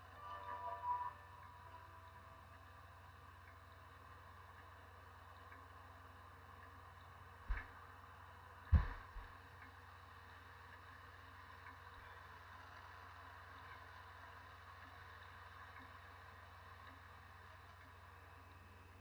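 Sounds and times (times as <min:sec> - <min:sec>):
low hum: 0:00.0 - 0:19.0
sharp thump: 0:08.7 - 0:09.2.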